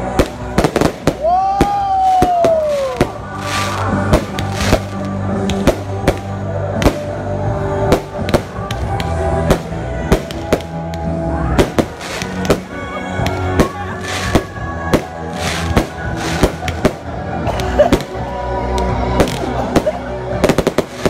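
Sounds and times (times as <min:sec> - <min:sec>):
fireworks bangs: 0:00.0 - 0:07.2, 0:07.8 - 0:17.1
loud music: 0:00.0 - 0:21.0.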